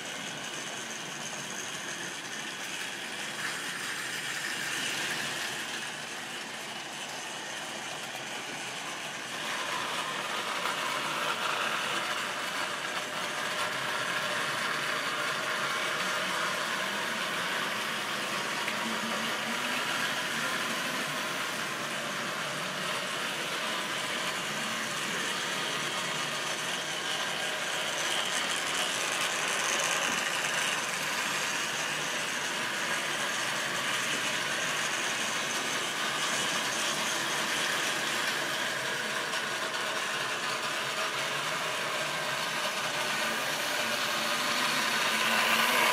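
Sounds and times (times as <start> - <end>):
model train wheels clattering: 0.0 - 45.9
small electric motor whirring: 0.1 - 45.9.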